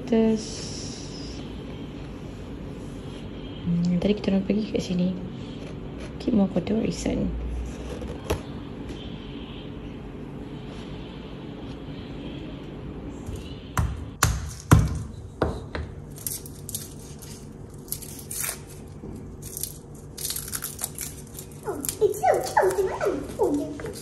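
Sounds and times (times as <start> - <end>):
low steady hum: 0.0 - 24.0
garlic skins crackling and tearing: 16.1 - 24.0.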